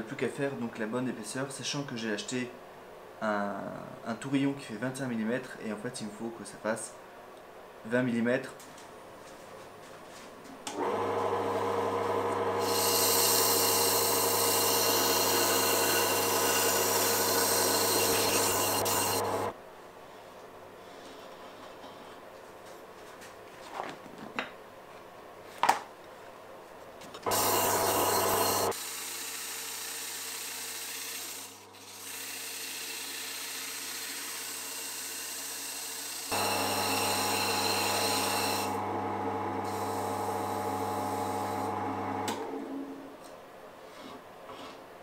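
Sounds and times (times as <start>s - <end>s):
wood lathe humming: 10.7s - 19.5s, 27.3s - 42.6s.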